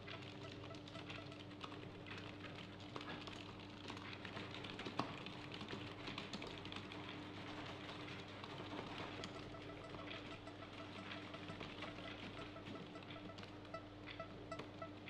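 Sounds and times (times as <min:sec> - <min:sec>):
typing on plastic keyboard: 0:00.0 - 0:15.0.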